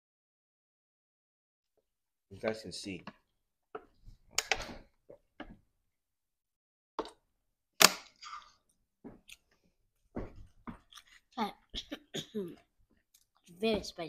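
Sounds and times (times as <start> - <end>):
people chewing and eating: 8.2 - 13.6.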